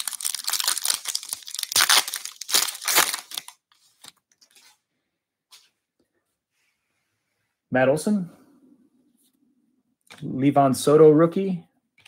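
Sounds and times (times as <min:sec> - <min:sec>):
plastic wrapper tearing and crinkling: 0:00.0 - 0:04.2
faint wrapper rustles: 0:00.0 - 0:04.8.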